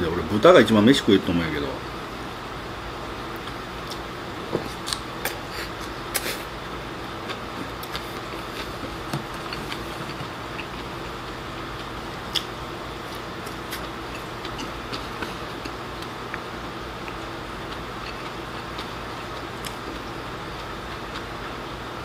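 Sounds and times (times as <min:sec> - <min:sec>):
chewing: 0:07.3 - 0:21.6.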